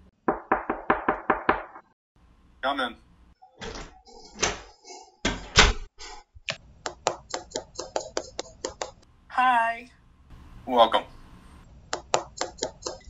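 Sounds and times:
door opening: 3.6 - 5.9.

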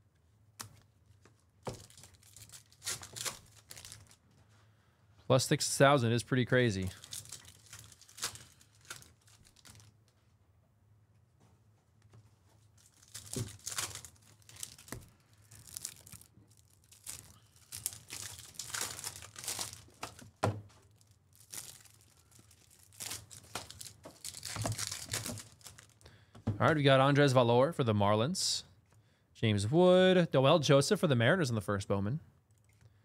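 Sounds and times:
foil wrappers tearing and crinkling: 1.7 - 4.2, 6.9 - 10.0, 12.8 - 26.0.

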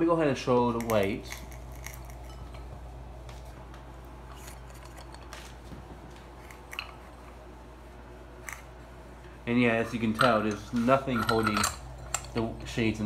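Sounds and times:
steady low hum: 0.0 - 13.0
glass clinks and clicks: 11.2 - 12.5.

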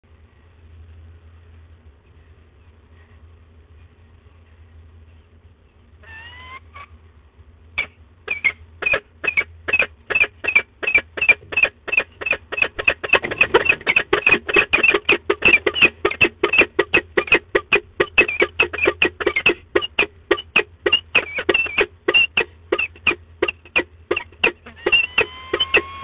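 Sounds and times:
falcon calling: 7.8 - 26.0.

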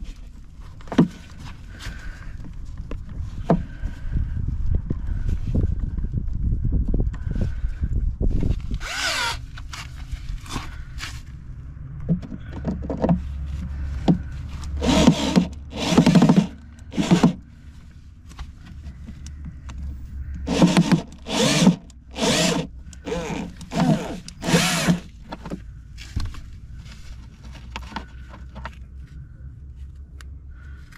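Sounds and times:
power drill backing out a screw: 8.8 - 9.4, 14.8 - 17.4, 20.4 - 25.2.

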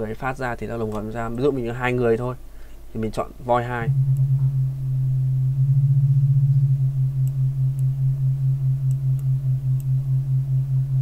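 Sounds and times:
wobbling low synthesizer tone: 3.8 - 11.0.

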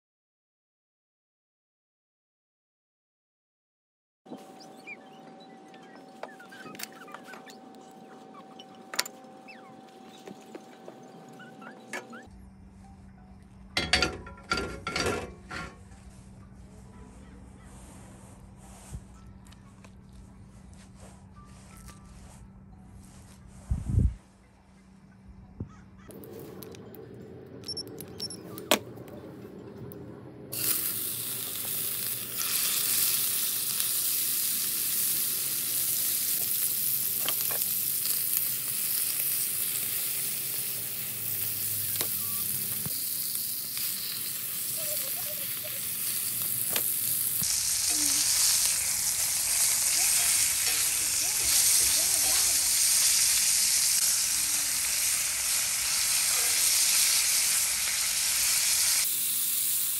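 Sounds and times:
steaks sizzling in hot oil: 30.6 - 59.9.

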